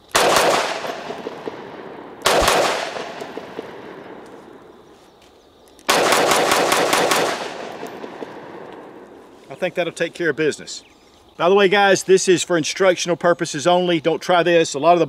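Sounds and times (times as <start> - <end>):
loud pistol shots with echo: 0.1 - 4.7, 5.9 - 9.2.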